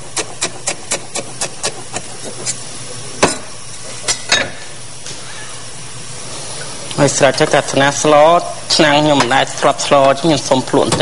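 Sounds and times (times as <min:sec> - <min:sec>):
knife chopping herbs on board: 0:00.1 - 0:02.5.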